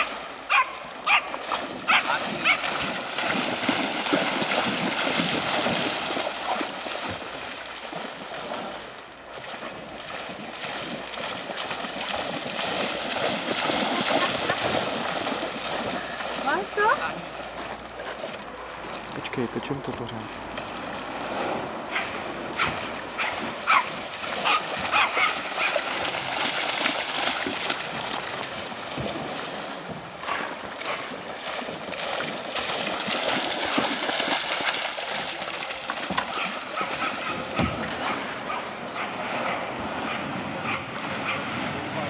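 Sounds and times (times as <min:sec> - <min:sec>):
dog barking: 0:00.0 - 0:02.7, 0:21.9 - 0:25.8, 0:30.3 - 0:31.1, 0:36.3 - 0:37.4, 0:38.0 - 0:41.5
dog splashing through water: 0:00.0 - 0:19.3, 0:20.3 - 0:42.0
flowing water rushing: 0:00.0 - 0:42.0.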